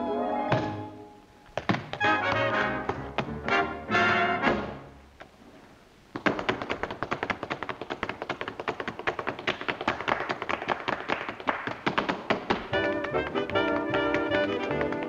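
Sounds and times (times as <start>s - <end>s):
tap shoes striking floor: 1.6s - 3.7s, 6.2s - 15.0s.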